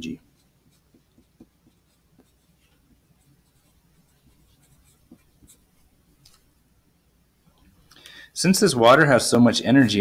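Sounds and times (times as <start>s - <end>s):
pencil writing on paper: 0.1s - 6.2s.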